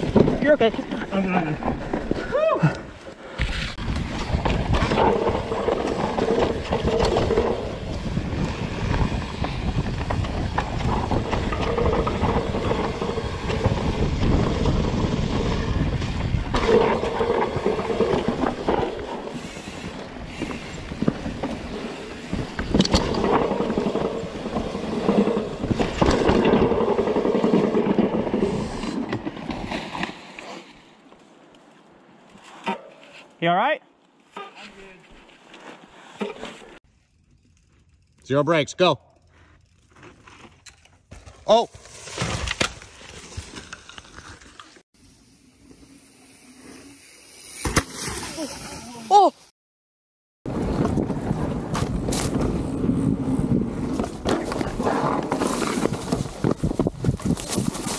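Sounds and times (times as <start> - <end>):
bike knocks and rattles: 0.0 - 2.2, 3.4 - 30.2, 50.5 - 57.9
bike tyre noise: 0.0 - 33.4, 34.2 - 49.5, 50.5 - 57.9
wind rumbling on microphone: 3.4 - 29.2, 50.5 - 57.9.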